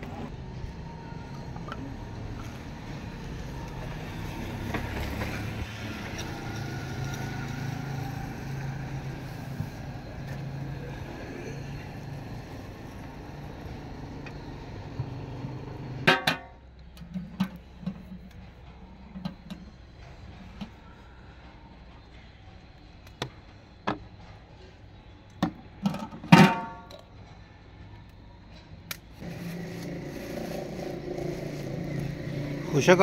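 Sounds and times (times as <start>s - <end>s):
vehicle engine running: 0.0s - 21.4s, 29.2s - 33.0s.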